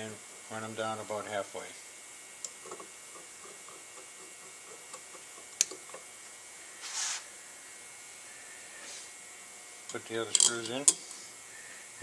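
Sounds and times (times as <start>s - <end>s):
short hiss: 6.8s - 7.3s.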